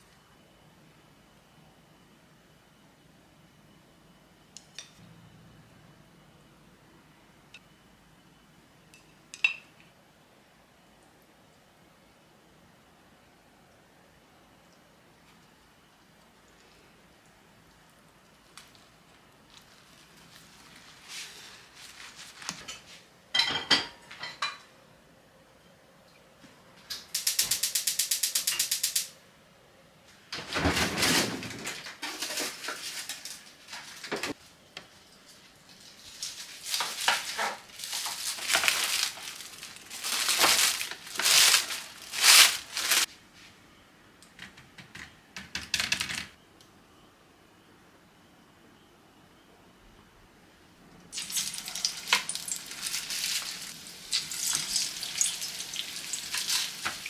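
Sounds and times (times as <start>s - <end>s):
pan and utensils clattering: 22.6s - 24.7s, 30.4s - 34.4s, 54.5s - 57.0s.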